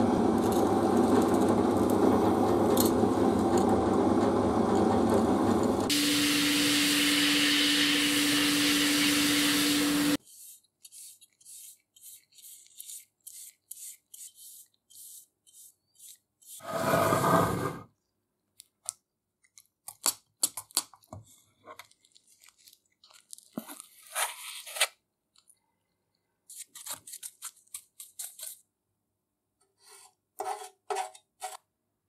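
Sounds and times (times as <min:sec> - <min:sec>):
sandblasting gun hissing: 0:05.9 - 0:10.2.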